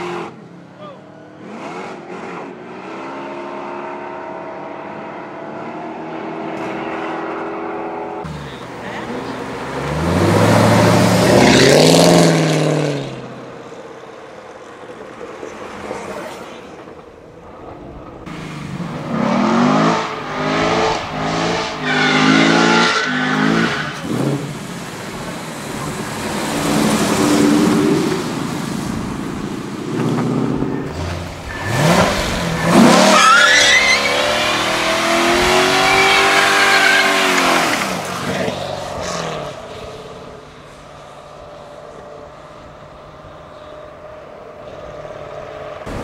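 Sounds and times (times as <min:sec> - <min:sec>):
car engine revving hard: 0:08.3 - 0:13.1, 0:18.6 - 0:24.6, 0:29.9 - 0:39.6.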